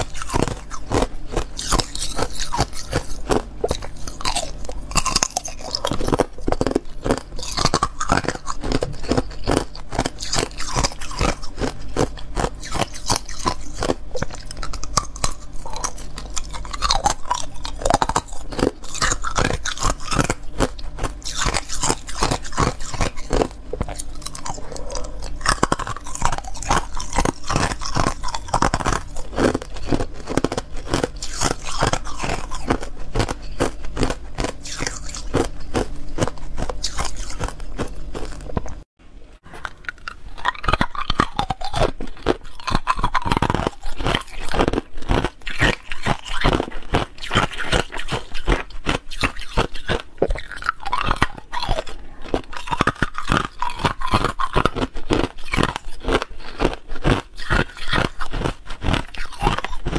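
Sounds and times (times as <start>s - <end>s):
biting and crunching ice: 0.0s - 38.8s, 39.5s - 59.9s.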